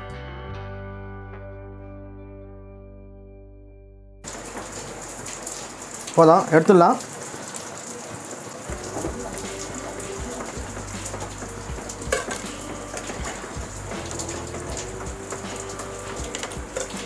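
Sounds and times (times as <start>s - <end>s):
oil sizzling and crackling: 4.2s - 17.0s.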